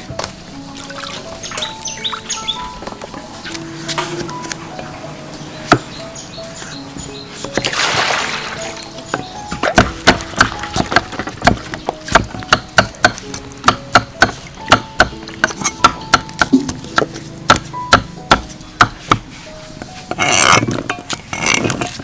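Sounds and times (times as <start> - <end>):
knife chopping on wooden block: 9.1 - 19.3.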